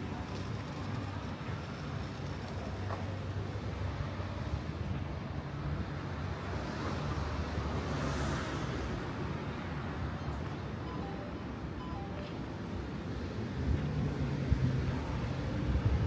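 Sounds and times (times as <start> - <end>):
low rumble of city traffic: 0.0 - 16.0
vehicle passing by: 13.4 - 16.0.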